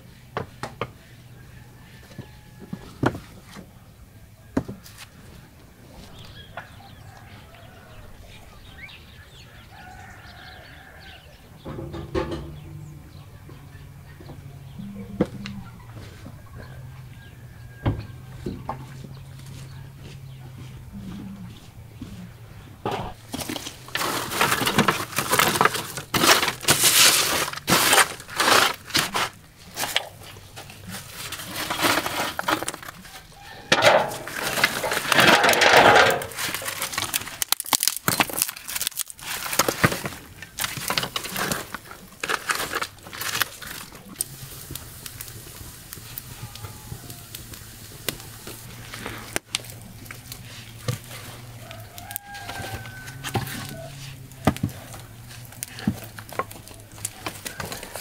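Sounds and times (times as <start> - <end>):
firewood set down on kindling: 11.6 - 12.8, 22.8 - 58.0
dry twigs snapping and crackling: 23.1 - 58.0.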